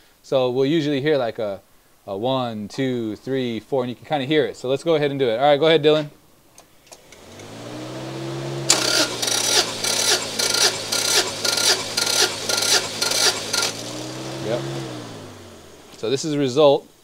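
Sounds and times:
engine cranked by starter: 0:06.9 - 0:16.1
starter whine: 0:06.9 - 0:16.4.

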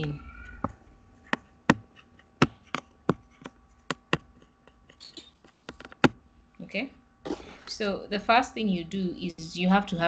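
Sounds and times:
pen clicking on whiteboard: 0:00.0 - 0:06.2.

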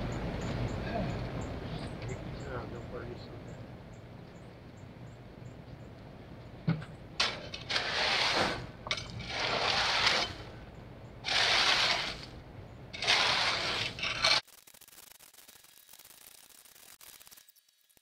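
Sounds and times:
rake scraping through gravel: 0:07.2 - 0:10.6, 0:11.2 - 0:14.5.

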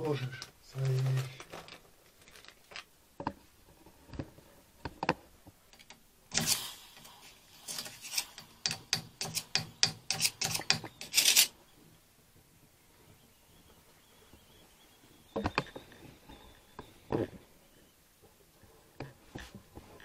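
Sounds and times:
rough scraping strokes: 0:06.3 - 0:11.6.

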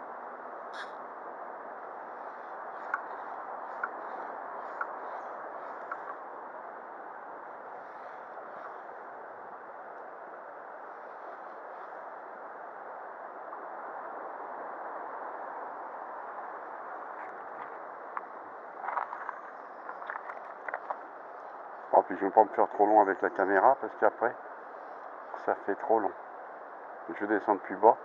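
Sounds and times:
faint clicks: 0:02.8 - 0:03.1, 0:03.7 - 0:05.0, 0:05.7 - 0:06.2.

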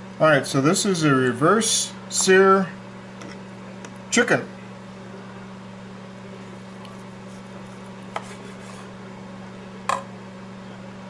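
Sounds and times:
microwave oven humming: 0:00.0 - 0:11.0
knife and fork cutting meat: 0:06.8 - 0:08.9.

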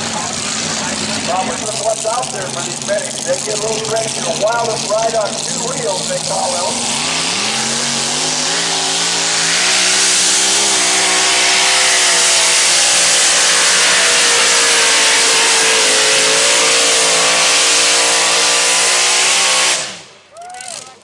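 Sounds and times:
tractor engine running flat out: 0:00.0 - 0:18.3.

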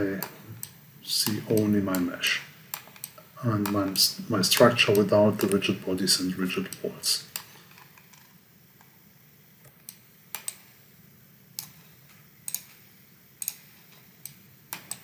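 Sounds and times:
faint room hum: 0:00.0 - 0:15.0
computer mouse clicking: 0:00.2 - 0:02.1, 0:02.7 - 0:05.6, 0:09.7 - 0:10.7, 0:11.6 - 0:12.8, 0:13.4 - 0:15.0.

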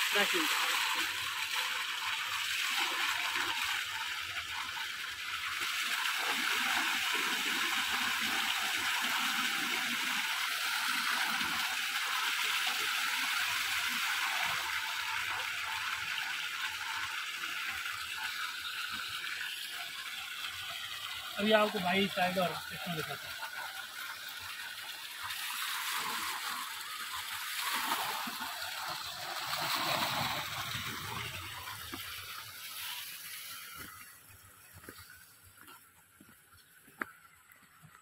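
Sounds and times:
water pouring into a basin: 0:00.0 - 0:36.3
water splashing: 0:12.8 - 0:38.0.

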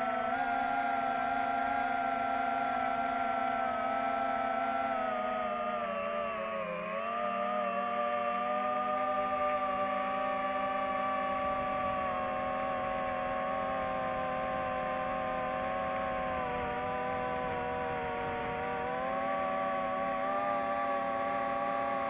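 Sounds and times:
drone propellers whining: 0:02.3 - 0:22.0.

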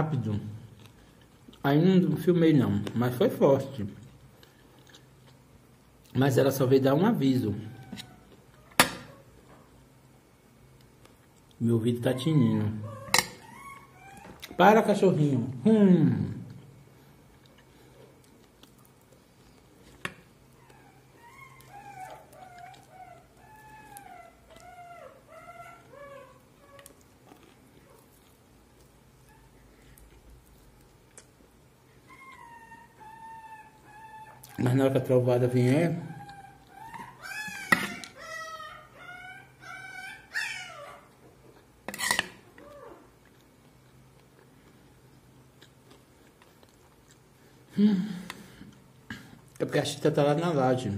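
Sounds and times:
dog whining and yelping: 0:07.6 - 0:09.4, 0:12.1 - 0:14.7, 0:20.4 - 0:28.2, 0:29.2 - 0:30.0, 0:31.9 - 0:34.6, 0:35.8 - 0:43.2.

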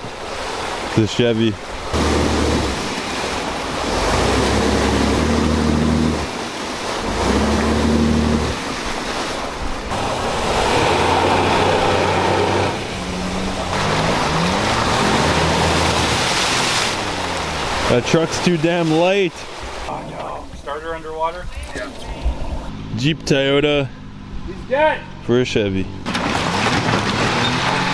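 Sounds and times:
wheels churning water and mud: 0:00.0 - 0:27.9
truck engine revving: 0:01.9 - 0:09.0, 0:09.7 - 0:19.1, 0:22.6 - 0:27.9.

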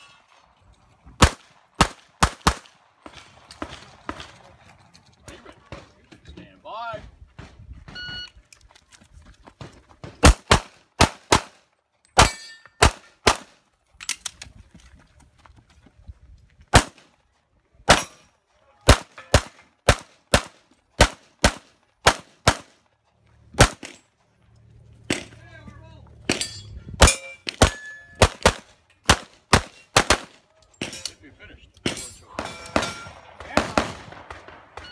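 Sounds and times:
pistol shots: 0:01.2 - 0:04.4, 0:10.0 - 0:11.6, 0:12.2 - 0:13.6, 0:16.7 - 0:17.0, 0:18.8 - 0:22.8, 0:23.6 - 0:24.0, 0:26.3 - 0:31.0, 0:31.8 - 0:34.9.

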